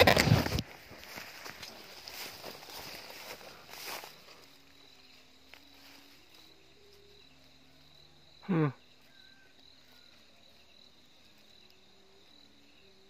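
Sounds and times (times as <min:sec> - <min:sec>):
crickets trilling: 0:00.0 - 0:13.0.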